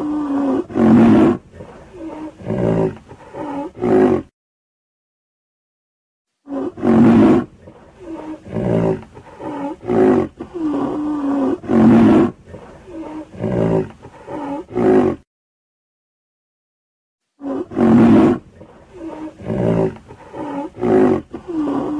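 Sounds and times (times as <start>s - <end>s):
rhinoceros bellowing: 0.0s - 4.3s, 6.5s - 15.2s, 17.4s - 21.9s.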